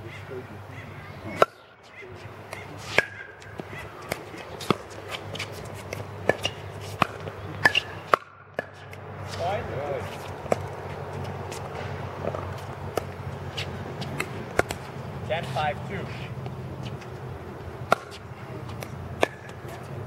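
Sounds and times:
ball bouncing: 0:02.4 - 0:09.1, 0:10.1 - 0:15.0, 0:17.9 - 0:20.0.

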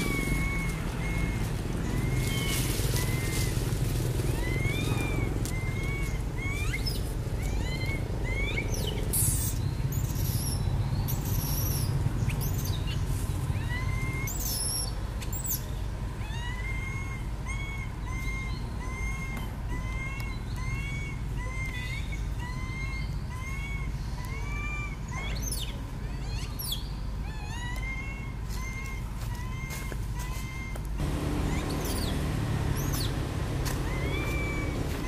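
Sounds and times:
young monkey whimpering coos: 0:00.0 - 0:03.6, 0:04.2 - 0:09.6, 0:16.2 - 0:35.0.

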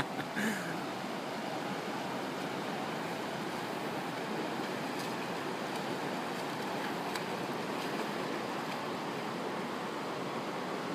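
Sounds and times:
water rushing over waterfall: 0:00.0 - 0:10.9
swimming splashes: 0:02.3 - 0:09.4.

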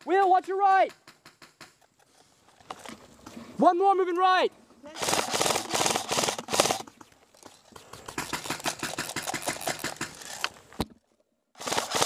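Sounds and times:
airsoft rifle automatic fire: 0:05.0 - 0:06.9, 0:08.1 - 0:10.3, 0:11.6 - 0:12.0.

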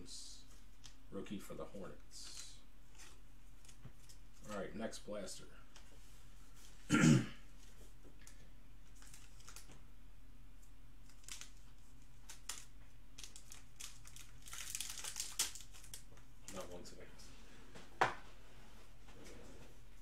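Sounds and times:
plastic wrapper crinkling and tearing: 0:08.2 - 0:09.8, 0:11.0 - 0:16.8.

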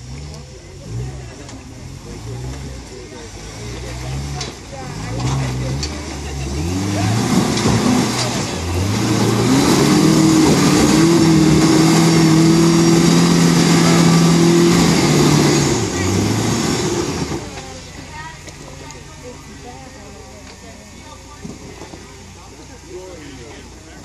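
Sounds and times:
pickup engine revving under load: 0:00.0 - 0:20.4.

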